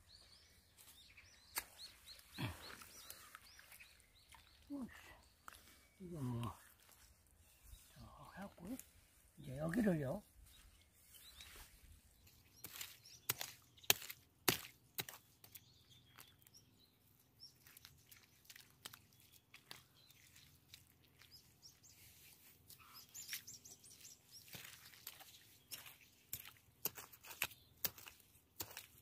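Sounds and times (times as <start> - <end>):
faint birds chirping: 0.0 - 29.0
hoe knocking in wet mud: 12.6 - 15.6, 24.4 - 29.0.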